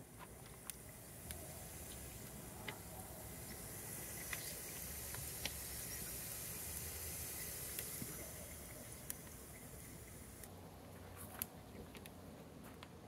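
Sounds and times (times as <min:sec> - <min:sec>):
oil popping and crackling: 0:00.0 - 0:10.5
potatoes sizzling in oil: 0:00.6 - 0:10.4.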